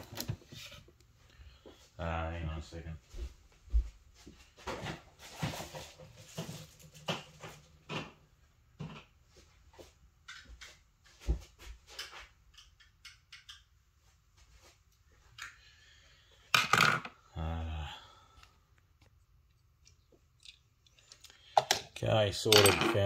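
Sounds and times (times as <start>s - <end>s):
light clicks and knocks of items: 9.8s - 13.7s, 18.3s - 22.0s.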